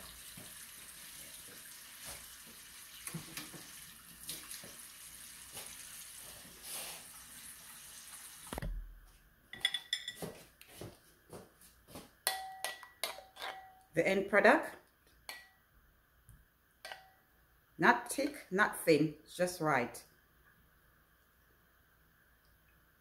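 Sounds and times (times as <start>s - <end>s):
steady hiss: 5.4s - 8.6s
dishes and utensils clinking: 9.5s - 10.4s, 12.3s - 13.9s, 16.8s - 17.2s.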